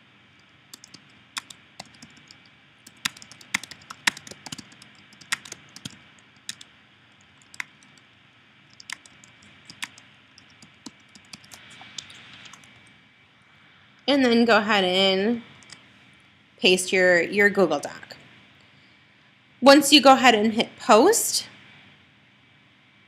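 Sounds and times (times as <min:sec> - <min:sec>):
typing on computer keyboard: 0:00.4 - 0:08.1, 0:08.7 - 0:12.8.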